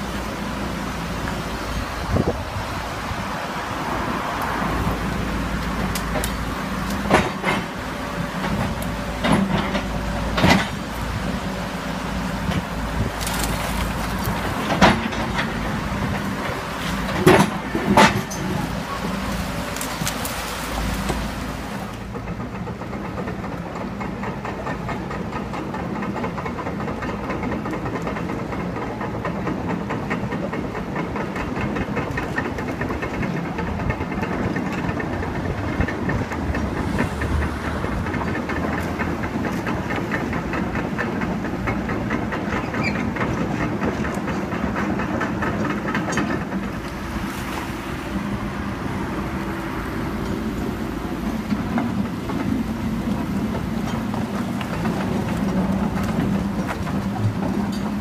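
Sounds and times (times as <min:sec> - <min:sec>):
river water rushing: 0:00.0 - 0:22.3, 0:36.0 - 0:58.0
excavator diesel engine running: 0:00.0 - 0:58.0.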